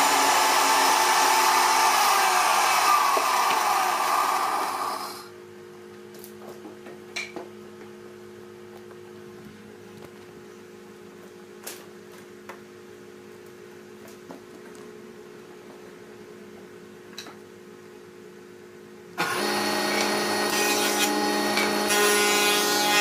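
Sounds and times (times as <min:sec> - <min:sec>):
band saw cutting wood: 0:00.0 - 0:05.3, 0:19.2 - 0:23.0.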